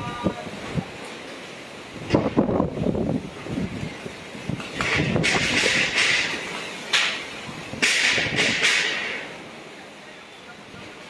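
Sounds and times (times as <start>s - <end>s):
strong wind rumble: 0.0s - 1.0s, 1.7s - 6.6s, 7.3s - 9.1s
waves splashing against seawall: 0.0s - 11.0s.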